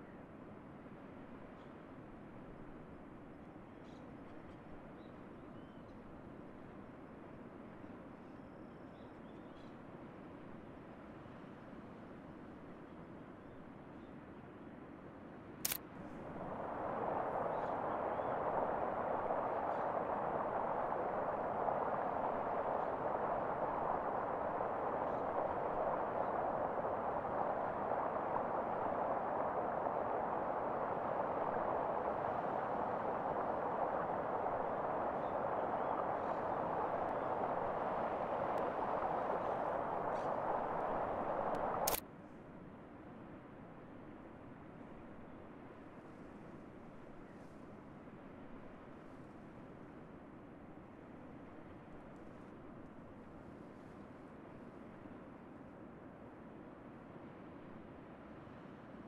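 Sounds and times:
click: 0:15.6 - 0:15.8, 0:41.5 - 0:42.0
steady hiss: 0:15.7 - 0:42.0.

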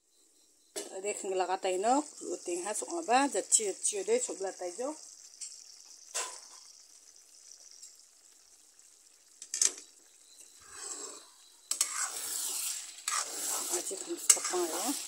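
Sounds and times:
curry simmering and sizzling: 0:00.4 - 0:15.0
spatula scraping and stirring: 0:10.4 - 0:15.0.

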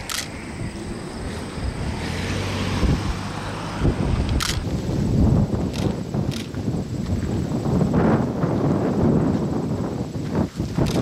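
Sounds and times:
camera shutter clicking: 0:00.0 - 0:00.3, 0:04.4 - 0:04.7
wind rumbling on microphone: 0:00.0 - 0:11.0.

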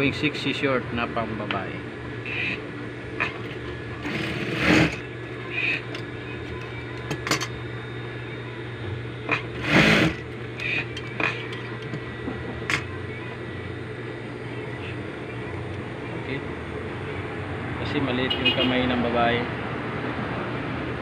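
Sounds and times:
sewing machine motor humming: 0:02.2 - 0:07.5, 0:09.3 - 0:13.9.

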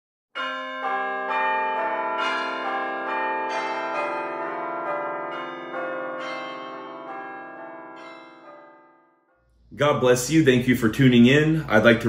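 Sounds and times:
bells ringing: 0:00.4 - 0:09.5.

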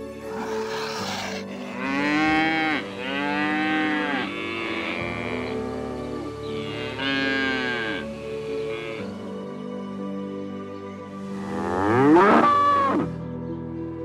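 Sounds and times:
animal calling: 0:00.2 - 0:09.0.

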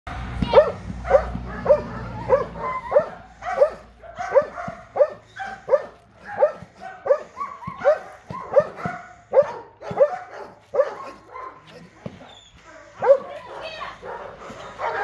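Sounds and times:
dog barking sharply: 0:00.5 - 0:11.7.

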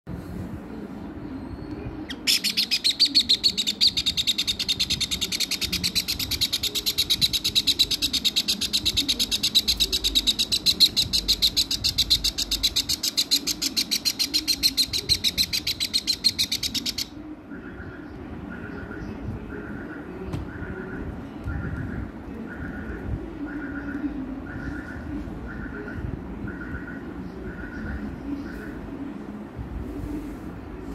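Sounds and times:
parrot chick begging chirps: 0:02.1 - 0:17.2.

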